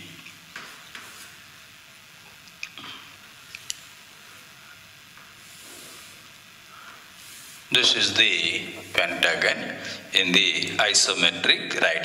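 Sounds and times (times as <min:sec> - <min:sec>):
chalk scraping on chalkboard: 0:05.4 - 0:06.2, 0:07.2 - 0:07.7.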